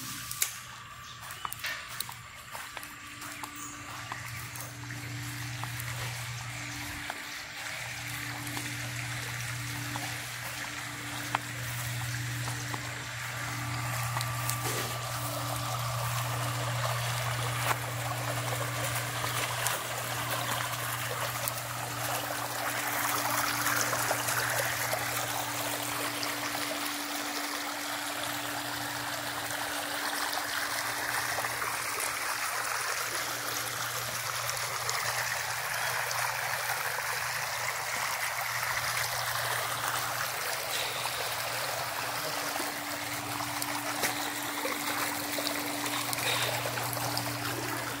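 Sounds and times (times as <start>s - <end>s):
low hum: 0.0s - 32.0s
running water: 0.0s - 48.0s.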